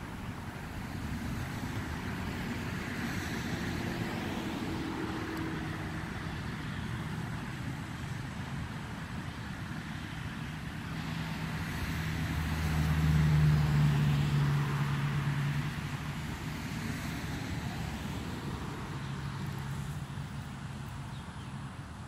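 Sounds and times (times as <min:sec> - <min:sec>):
vehicle engine passing by: 0:00.0 - 0:21.8.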